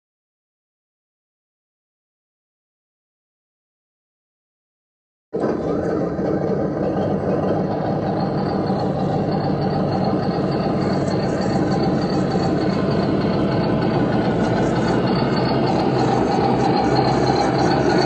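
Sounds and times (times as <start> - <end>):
engine idling rumble: 5.4 - 18.0.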